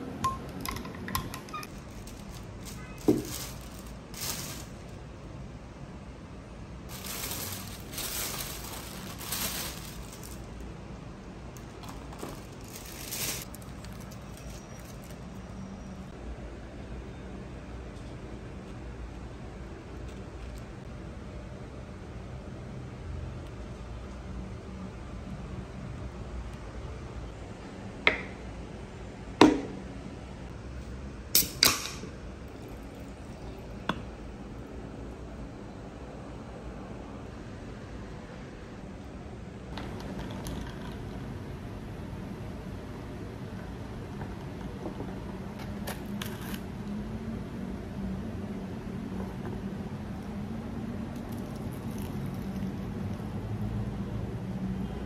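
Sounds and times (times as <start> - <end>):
plastic bag rustling: 1.6 - 5.0, 6.9 - 10.6, 11.6 - 15.4.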